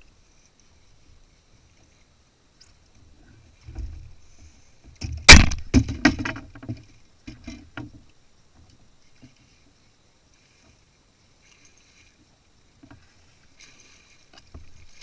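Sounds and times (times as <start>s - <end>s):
gear knocking against kayak hull: 4.9s - 8.0s.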